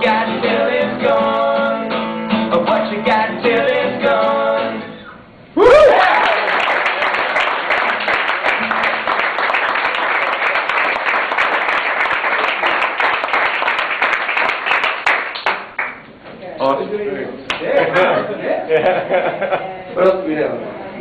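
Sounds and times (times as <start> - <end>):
person whooping: 5.6 - 6.6
audience applauding: 5.8 - 16.0.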